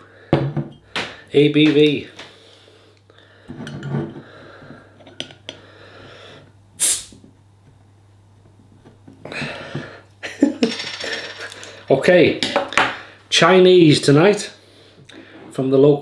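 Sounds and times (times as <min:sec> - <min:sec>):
gas hissing from bottle: 0:06.8 - 0:07.2.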